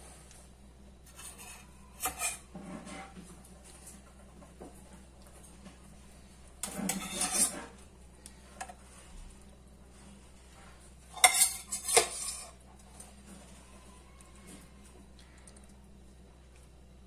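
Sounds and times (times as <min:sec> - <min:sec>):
spoon scraping cookware: 0:01.0 - 0:03.2, 0:06.6 - 0:07.8, 0:11.1 - 0:12.6.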